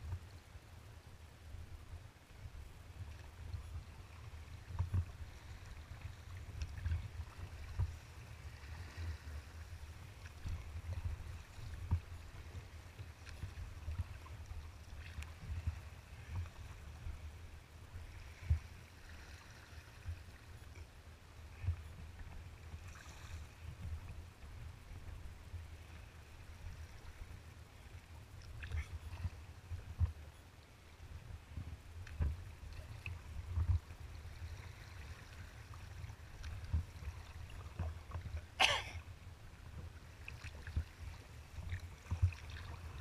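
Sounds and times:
water splashing against kayak hull: 3.0s - 17.3s, 31.4s - 43.0s.

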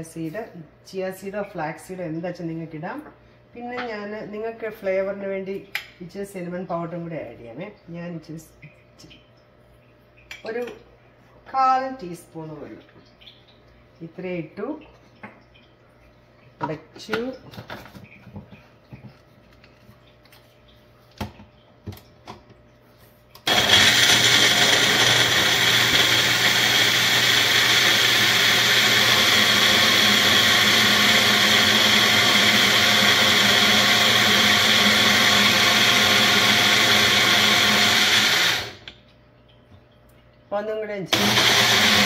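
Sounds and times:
blender motor running: 23.4s - 38.9s, 41.1s - 42.0s.

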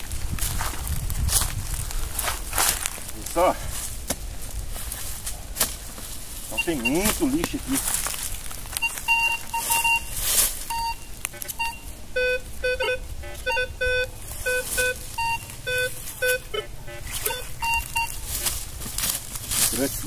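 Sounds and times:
rustles: 0.0s - 20.0s
metal detector beeps: 6.5s - 7.4s, 8.8s - 18.6s.

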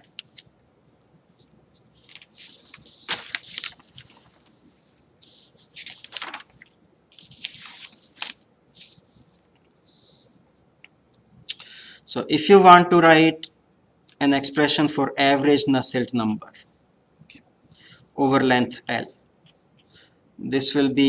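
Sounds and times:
paper pages rustling: 0.0s - 0.5s, 1.3s - 10.2s.

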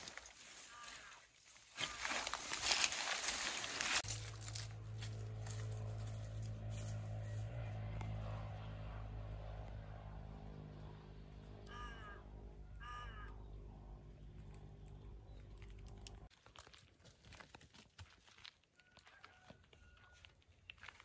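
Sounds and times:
footsteps on dry ground: 0.0s - 7.6s
bird calls: 11.6s - 15.6s.

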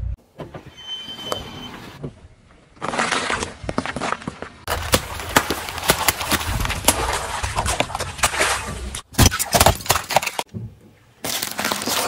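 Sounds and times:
tyre crunching objects: 2.6s - 10.5s, 11.2s - 12.0s.

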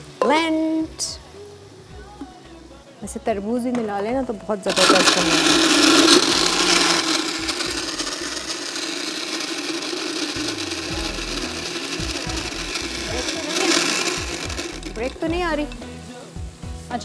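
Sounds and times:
blender crushing ice: 4.7s - 15.3s.

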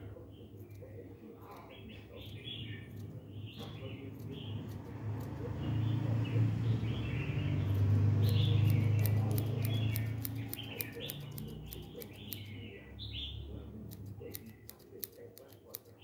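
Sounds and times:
birds chirping: 0.0s - 16.0s
scissors snipping: 7.6s - 12.5s, 13.9s - 16.0s.

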